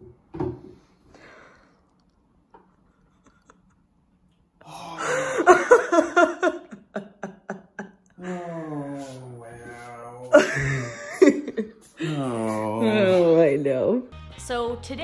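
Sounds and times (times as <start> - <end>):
person breathing: 1.0 - 1.9, 4.6 - 5.6, 11.9 - 12.3.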